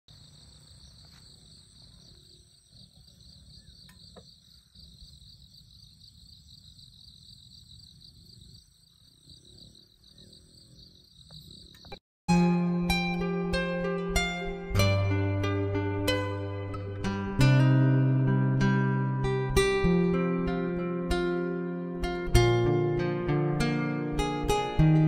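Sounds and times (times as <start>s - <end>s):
insects chirring: 0.1s - 12.0s.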